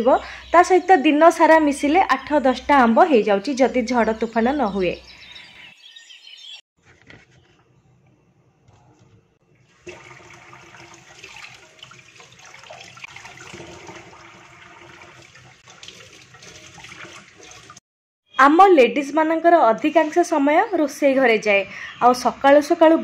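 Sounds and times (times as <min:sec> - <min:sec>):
tap water running into sink: 0:09.7 - 0:17.8.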